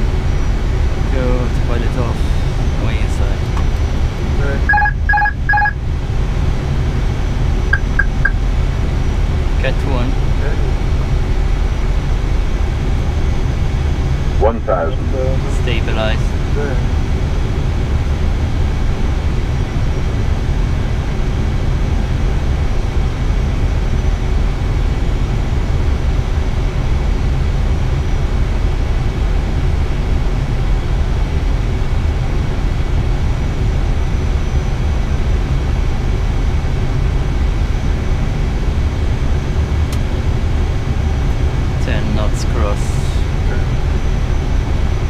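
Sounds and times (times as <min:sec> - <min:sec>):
aircraft cockpit low rumble: 0:00.0 - 0:45.0
faint high whines: 0:07.7 - 0:08.4.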